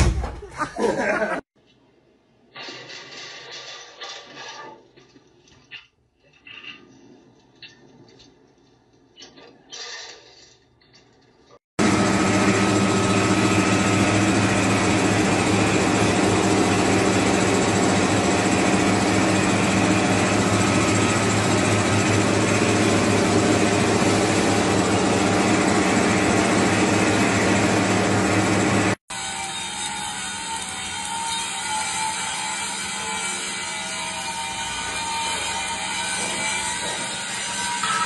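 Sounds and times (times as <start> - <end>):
lathe machine hum: 11.8 - 37.9.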